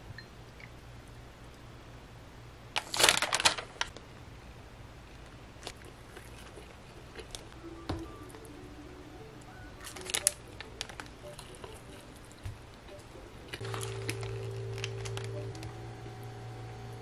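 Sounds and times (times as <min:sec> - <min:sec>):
paper wrapper crinkling: 0:02.8 - 0:04.0, 0:09.8 - 0:12.4, 0:13.5 - 0:15.7
steady low hum: 0:03.5 - 0:17.0.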